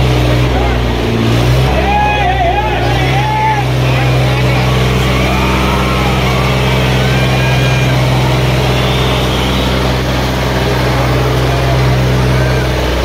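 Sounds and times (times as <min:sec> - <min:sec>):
tractor engine droning: 0:00.0 - 0:13.0.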